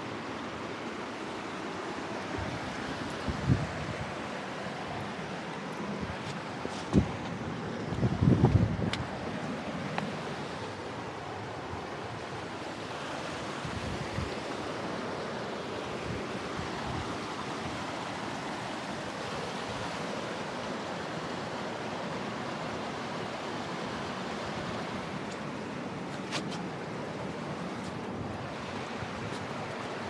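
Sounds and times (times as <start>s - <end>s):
water rushing: 0.0s - 30.0s
wind on microphone: 2.3s - 4.2s, 5.9s - 9.4s, 13.6s - 14.6s.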